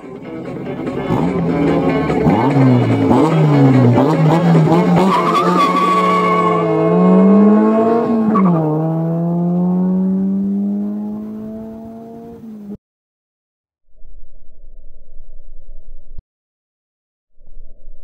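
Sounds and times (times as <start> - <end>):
pickup truck accelerating: 0.3 - 12.3.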